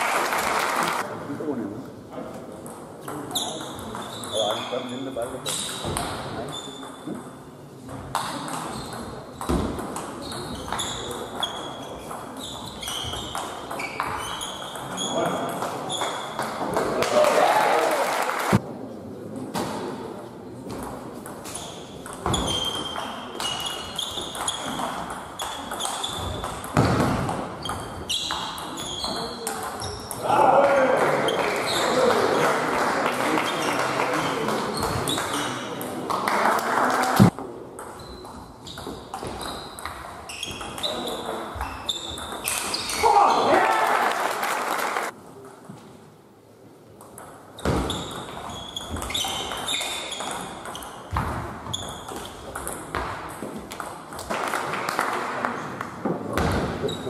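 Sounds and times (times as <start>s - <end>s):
shoes squeaking on floor: 3.3s - 7.2s, 8.7s - 9.5s, 10.2s - 16.5s, 21.4s - 30.2s, 31.3s - 32.0s, 33.4s - 35.7s, 37.9s - 43.1s, 47.6s - 53.1s, 56.8s - 57.0s.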